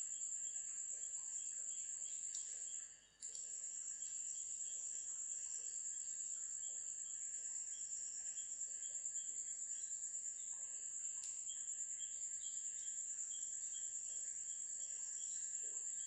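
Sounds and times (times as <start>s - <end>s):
insect chirring: 0.0s - 16.0s
soft repeated chirp: 1.4s - 4.4s.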